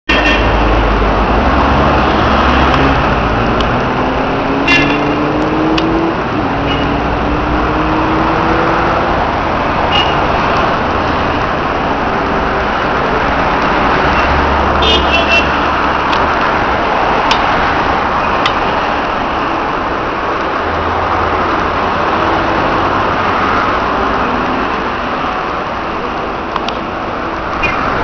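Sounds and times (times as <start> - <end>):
road traffic: 0.0 - 28.0
car engine speeding up: 1.1 - 9.9.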